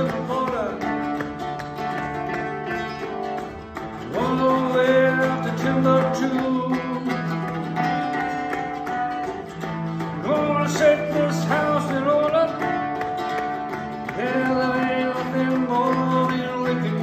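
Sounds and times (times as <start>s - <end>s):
man singing: 0.0s - 1.4s, 4.0s - 8.9s, 10.0s - 17.0s
strummed mandolin: 0.0s - 17.0s.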